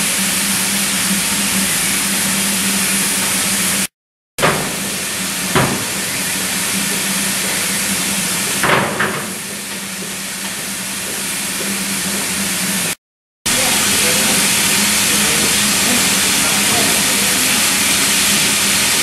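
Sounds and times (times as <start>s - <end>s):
steam hissing: 0.0s - 19.0s
knocks: 4.4s - 6.0s.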